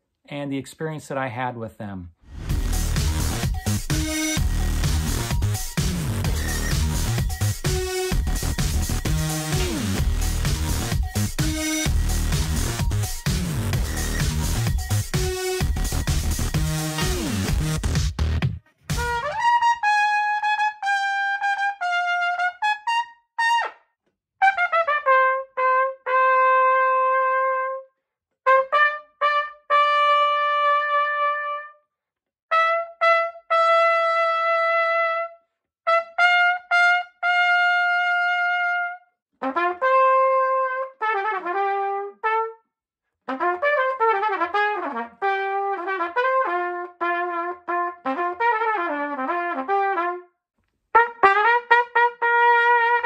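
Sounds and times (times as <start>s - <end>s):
solo trumpet playing: 18.9s - 23.8s, 24.4s - 31.8s, 32.5s - 42.6s, 43.3s - 53.0s.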